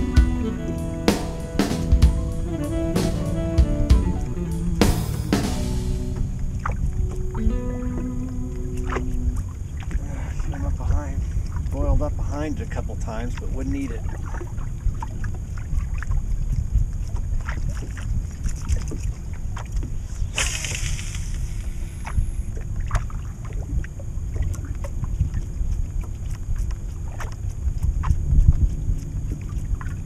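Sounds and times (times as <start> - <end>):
wind on microphone: 14.0 - 30.0.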